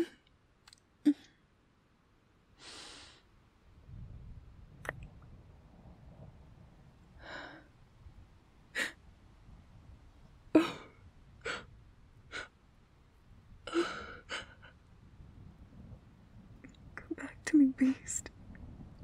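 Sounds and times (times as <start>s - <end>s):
woman sobbing: 10.6s - 11.7s, 13.7s - 14.8s.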